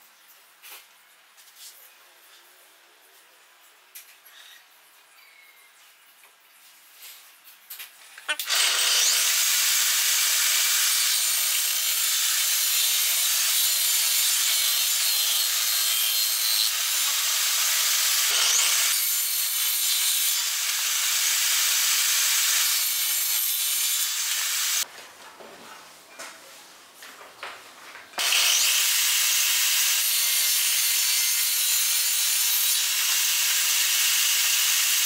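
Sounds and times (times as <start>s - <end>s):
table saw ripping wooden board: 8.3s - 24.8s, 28.2s - 34.8s.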